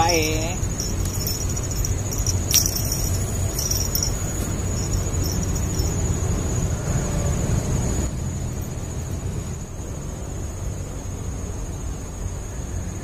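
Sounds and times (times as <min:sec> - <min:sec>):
high-pitched insect drone: 0:00.0 - 0:08.1.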